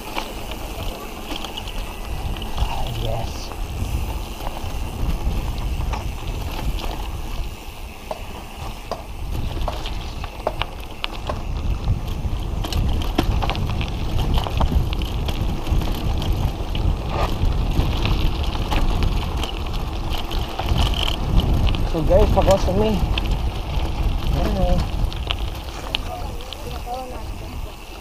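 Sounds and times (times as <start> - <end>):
bike clicks and rattles: 0.0 - 28.0
tyre and wind rumble: 0.0 - 28.0.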